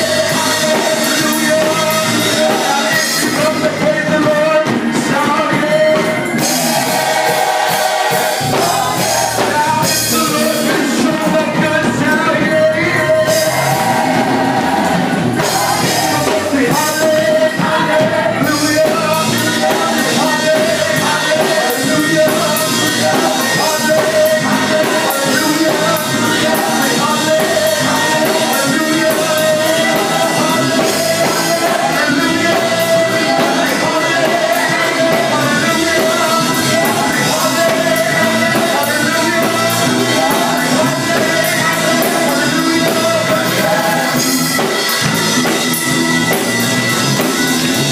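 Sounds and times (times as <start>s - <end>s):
gospel group singing: 0.0s - 46.6s
musical accompaniment: 0.0s - 47.9s.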